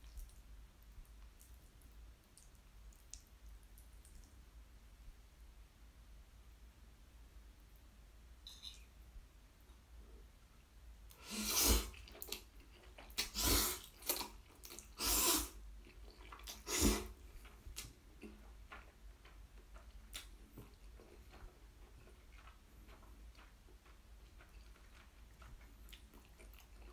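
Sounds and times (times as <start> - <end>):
quiet wet chewing: 0.0 - 5.2, 7.6 - 26.9
person slurping noodles: 11.2 - 12.4, 13.2 - 15.6, 16.4 - 17.2.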